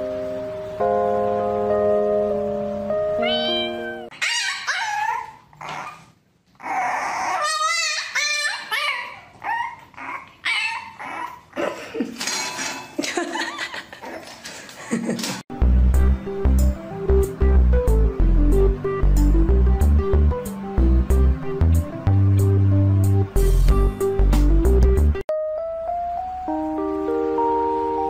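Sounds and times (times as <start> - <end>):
puppy whining and yelping: 3.3 - 11.6.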